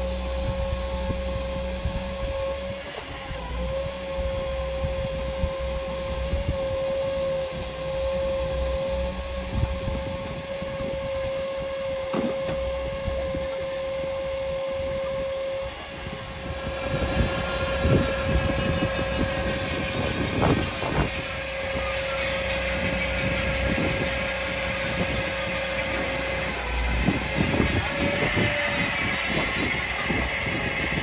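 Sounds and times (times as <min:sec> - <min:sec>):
hydraulic crane whine: 0:00.0 - 0:31.0.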